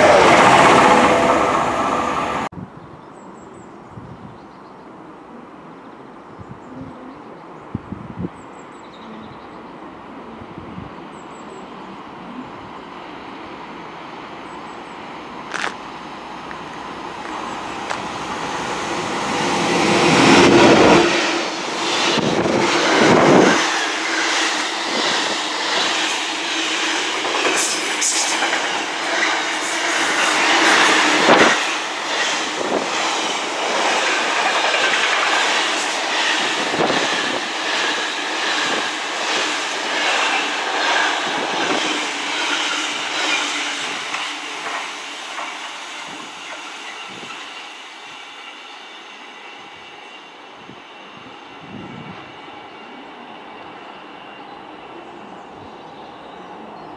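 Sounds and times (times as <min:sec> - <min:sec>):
diesel locomotive passing: 0:00.0 - 0:02.5, 0:08.6 - 0:56.9.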